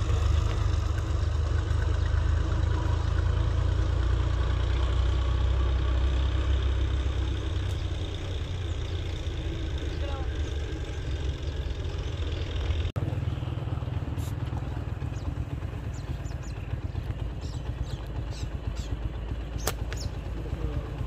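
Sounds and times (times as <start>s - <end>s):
steady low rumble: 0.0s - 21.0s
slingshot snap: 19.6s - 20.1s.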